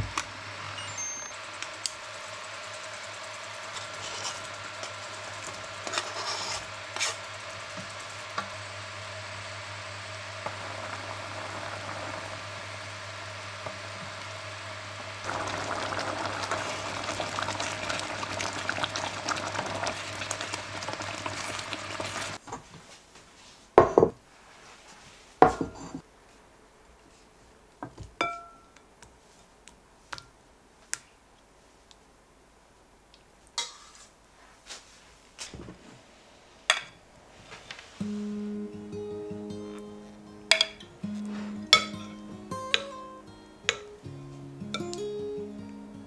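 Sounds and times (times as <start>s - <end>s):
thick sauce bubbling: 15.2s - 22.4s
spoon clinking on bowls: 28.2s - 28.8s, 41.7s - 42.8s.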